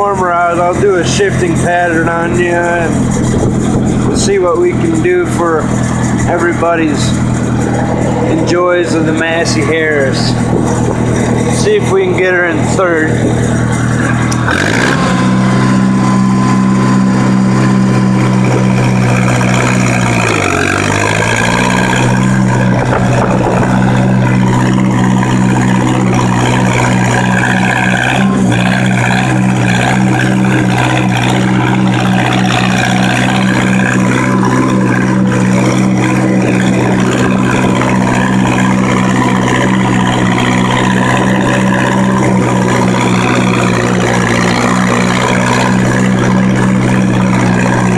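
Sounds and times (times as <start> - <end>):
tractor engine running under load: 0.0 - 47.9.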